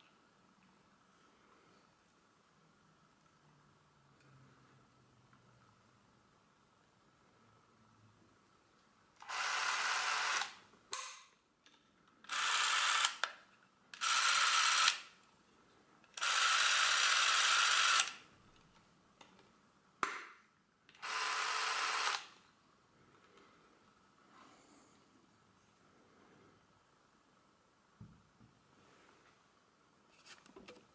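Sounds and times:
movie camera motor whirring: 0:09.2 - 0:10.6, 0:12.2 - 0:13.3, 0:14.0 - 0:15.1, 0:16.2 - 0:18.2, 0:21.0 - 0:22.3.

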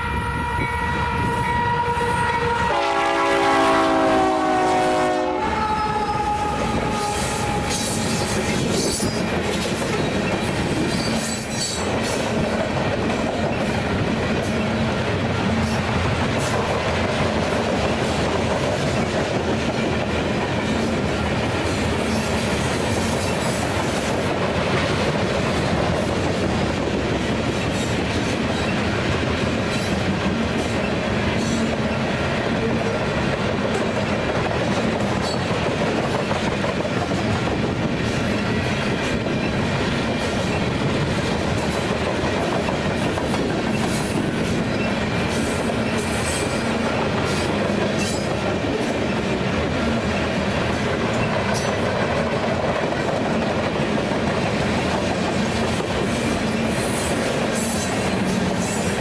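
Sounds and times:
locomotive horn: 0:00.0 - 0:08.6
freight train wheels rumbling on rails: 0:00.0 - 0:59.0.

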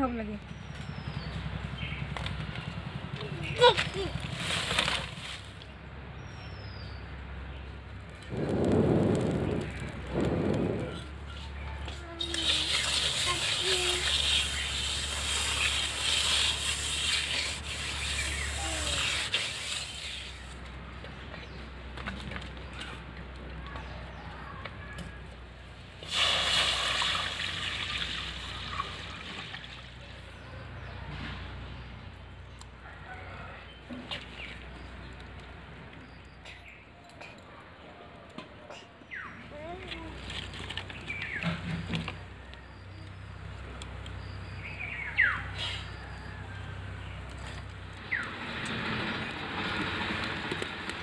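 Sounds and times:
outdoor background noise: 0:00.0 - 0:51.0
water pouring into a steel pan: 0:26.0 - 0:30.0.

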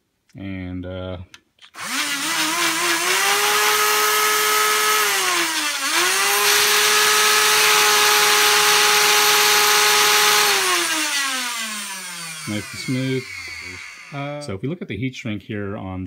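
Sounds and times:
electric motors whining: 0:01.7 - 0:14.4.

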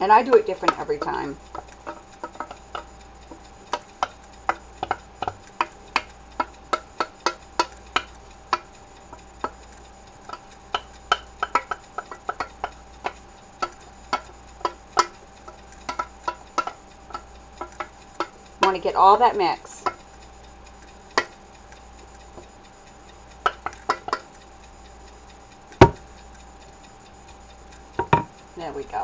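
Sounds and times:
spoon knocking and scraping bowl: 0:28.0 - 0:28.3.

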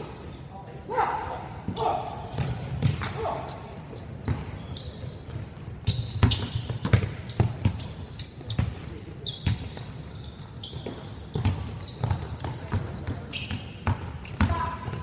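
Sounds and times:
shoe squeaks: 0:01.7 - 0:14.9
basketball bouncing on hardwood: 0:10.9 - 0:12.4.

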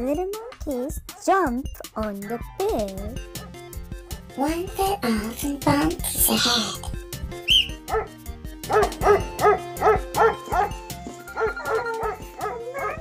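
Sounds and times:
background music: 0:00.0 - 0:13.0
animal-like yelping calls: 0:07.5 - 0:08.1.

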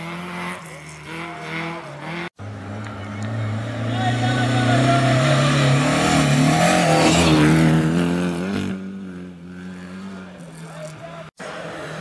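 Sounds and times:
rally car engine revving past: 0:00.0 - 0:10.7.

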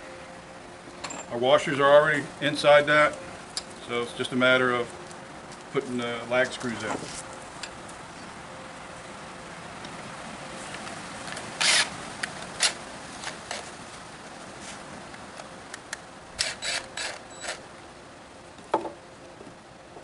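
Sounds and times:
impact driver bursts: 0:11.6 - 0:11.9, 0:16.4 - 0:17.6
knock: 0:18.7 - 0:19.0.

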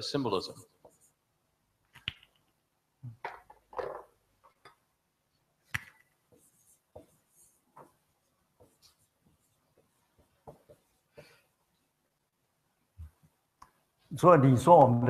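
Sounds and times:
marker writing on whiteboard: 0:00.5 - 0:01.2, 0:05.6 - 0:11.8.

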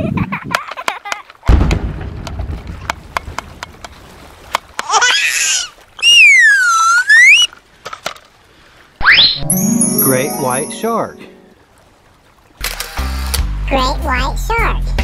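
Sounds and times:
cartoon swooping whistle: 0:06.0 - 0:07.5, 0:09.0 - 0:09.7
cartoon warbling chirp: 0:09.0 - 0:10.8.

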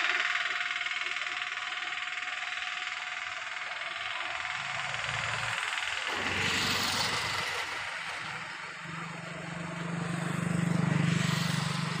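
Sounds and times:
low engine hum: 0:04.5 - 0:12.0
vehicle road noise: 0:06.1 - 0:12.0.

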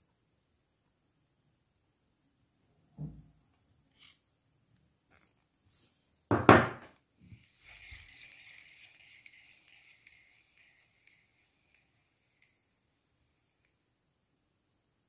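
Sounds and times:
fishing reel rotor whirring: 0:07.3 - 0:13.8.

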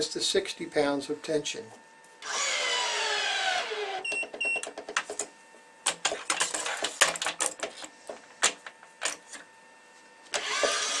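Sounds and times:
motor pulling string: 0:02.2 - 0:04.1, 0:10.3 - 0:11.0.

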